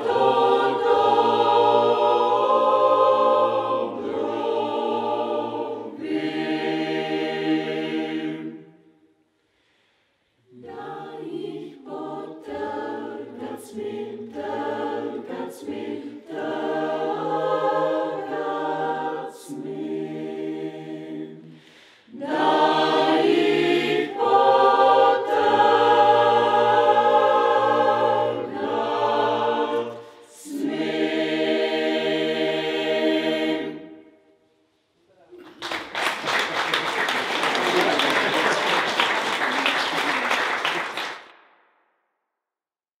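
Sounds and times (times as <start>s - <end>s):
mixed choir singing a cappella: 0.0s - 8.8s, 10.4s - 34.4s.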